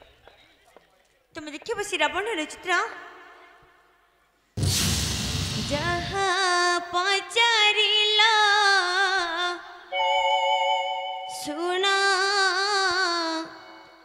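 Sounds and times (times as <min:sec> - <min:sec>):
percussion crash: 0:04.6 - 0:06.6
woman singing: 0:05.7 - 0:09.9, 0:11.3 - 0:14.0.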